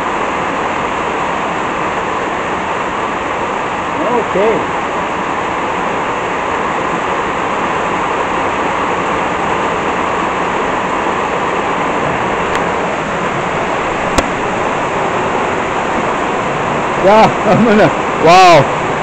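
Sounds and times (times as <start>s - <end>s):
heavy rain on a metal roof: 0.0s - 19.0s.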